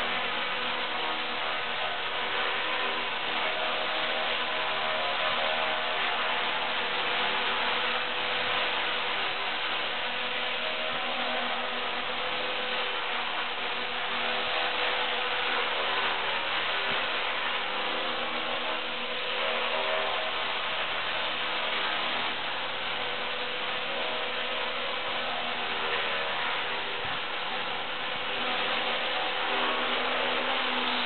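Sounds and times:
toy helicopter buzzing whine: 0.0 - 31.0.

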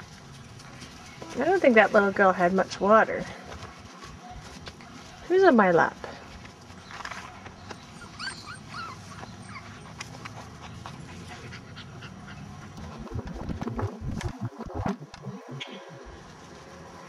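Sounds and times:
puppy whimpering: 7.9 - 10.0.

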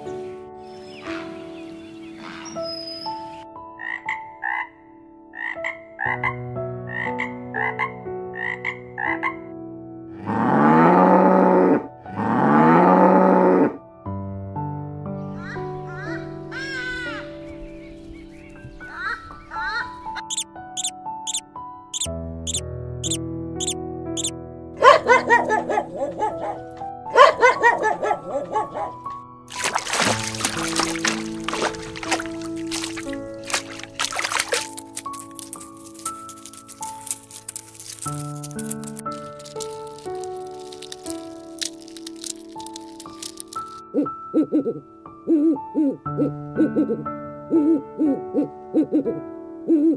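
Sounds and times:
soft background music: 0.0 - 49.9
frog croaking: 3.8 - 4.8, 5.4 - 6.3, 6.9 - 9.4, 20.2 - 21.4, 22.0 - 24.3
animal yapping calls: 22.0 - 26.6, 27.2 - 29.0.

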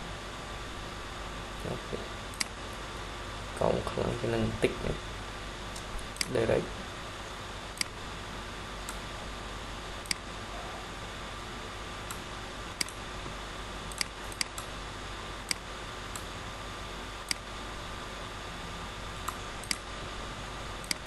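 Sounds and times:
microphone hiss: 0.0 - 21.0
computer mouse clicking: 2.3 - 2.6, 7.8 - 8.0, 8.8 - 9.0, 10.0 - 10.3, 12.0 - 13.0, 13.9 - 14.7, 17.2 - 17.5, 19.2 - 19.9.

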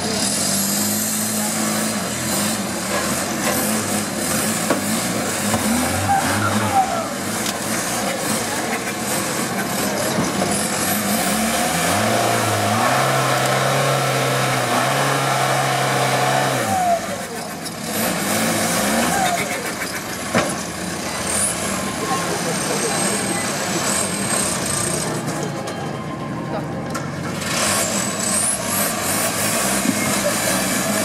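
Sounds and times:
buggy engine revving: 0.0 - 31.0.

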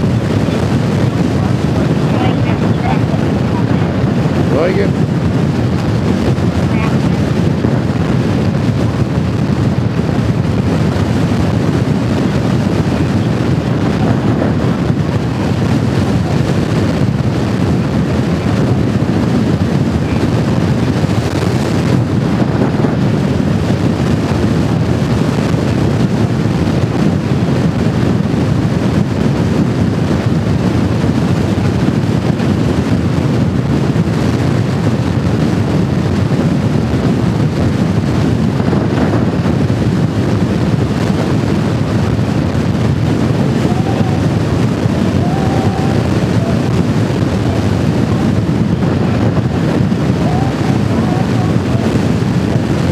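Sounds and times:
motorcycle engine: 0.0 - 25.4, 40.4 - 52.9
wind rush over microphone: 0.0 - 52.9.

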